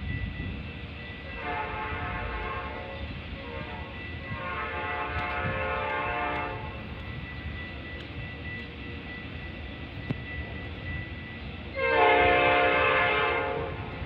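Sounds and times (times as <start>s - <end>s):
distant train horn: 1.2s - 6.9s, 11.7s - 14.0s.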